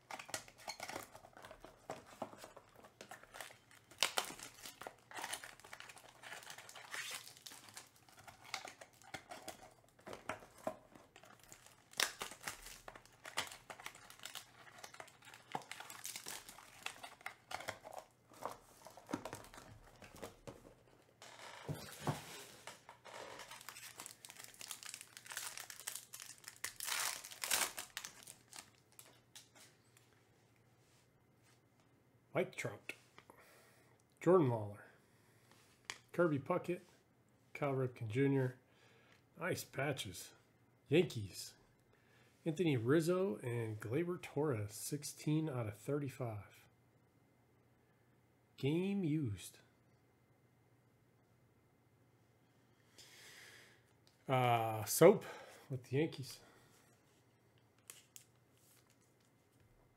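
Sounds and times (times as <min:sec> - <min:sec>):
foil pack crinkling and tearing: 0:02.5 - 0:20.3, 0:23.3 - 0:29.5.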